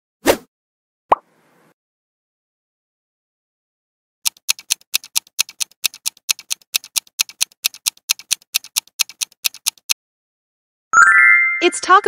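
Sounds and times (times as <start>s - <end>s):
clock-like ticking: 4.2s - 10.0s.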